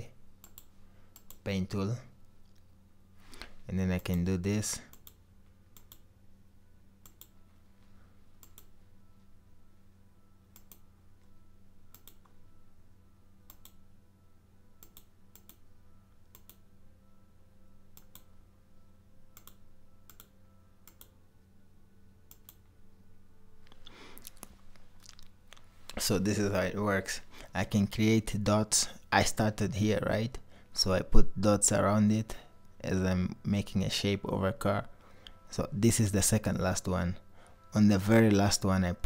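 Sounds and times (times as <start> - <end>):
low steady hum: 0.0 - 39.0
computer mouse clicking: 0.4 - 1.4, 4.9 - 5.2, 5.8 - 6.0, 7.0 - 7.3, 8.4 - 8.7, 10.5 - 10.8, 11.9 - 12.4, 13.5 - 13.8, 14.8 - 15.6, 16.3 - 16.6, 17.9 - 18.3, 19.4 - 21.1, 22.3 - 22.7.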